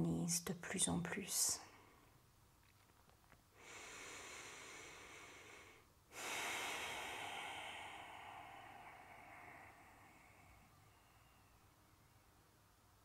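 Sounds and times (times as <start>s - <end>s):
woman breathing through nose: 3.6s - 11.6s.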